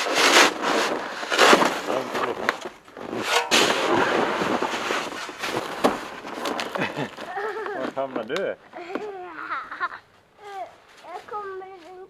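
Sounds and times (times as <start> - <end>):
snow shovel scraping snow: 0.0 - 8.1, 10.6 - 12.0.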